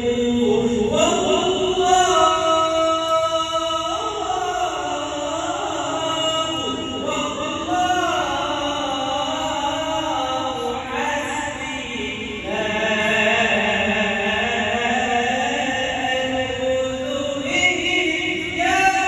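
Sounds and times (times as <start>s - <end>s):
man chanting: 0.0s - 19.0s.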